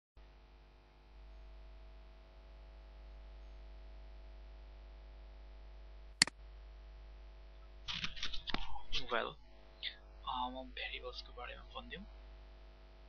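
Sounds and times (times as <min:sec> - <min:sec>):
electrical hum and hiss: 0:00.2 - 0:13.0.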